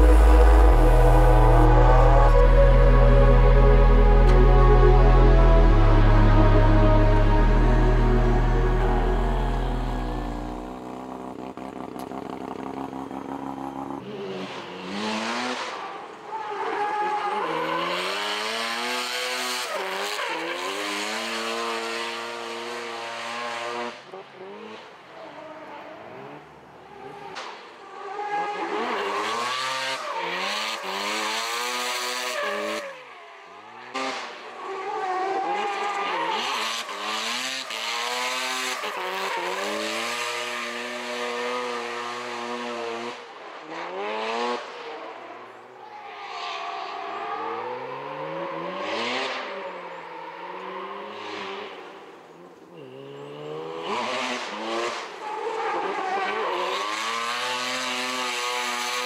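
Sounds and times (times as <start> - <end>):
car engine at full throttle: 0.0 - 16.3, 28.3 - 32.8, 35.4 - 45.5, 50.4 - 59.0.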